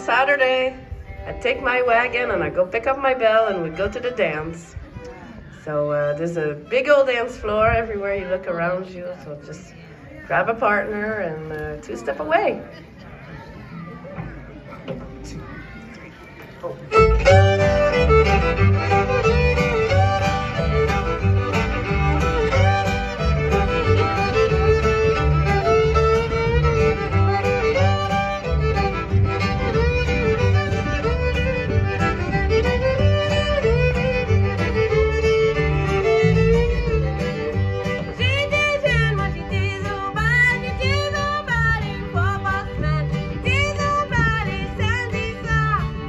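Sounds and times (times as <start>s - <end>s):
fiddles playing melody: 0.0s - 12.3s, 16.5s - 46.0s
upright bass: 16.9s - 46.0s.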